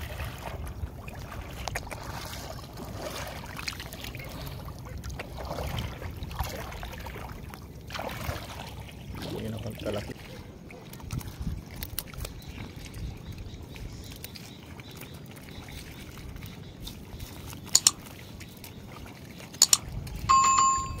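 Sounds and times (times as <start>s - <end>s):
mouse clicks: 17.8s - 18.0s, 19.6s - 19.8s
bright bell ding: 19.6s - 21.0s.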